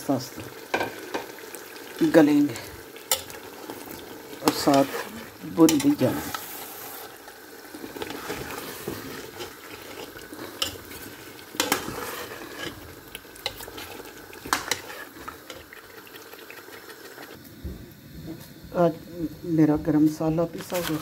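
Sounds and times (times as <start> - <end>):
curry sizzling: 0.0 - 19.0
metal spatula scraping pot: 4.4 - 7.2, 7.8 - 15.9.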